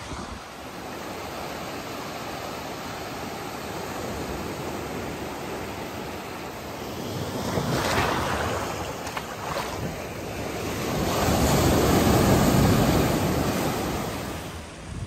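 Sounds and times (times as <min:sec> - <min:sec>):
wind buffeting microphone: 0:00.0 - 0:02.0
waves breaking on beach: 0:00.0 - 0:15.0.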